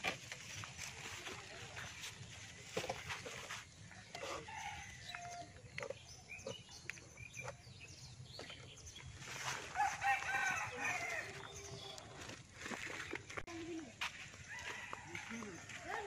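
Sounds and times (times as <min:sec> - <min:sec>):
rooster crowing: 0:09.8 - 0:11.4.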